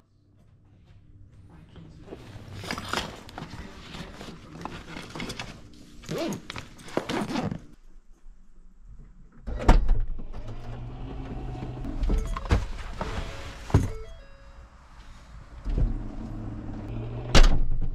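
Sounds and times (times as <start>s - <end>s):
fabric backpack rustling: 2.0s - 7.8s.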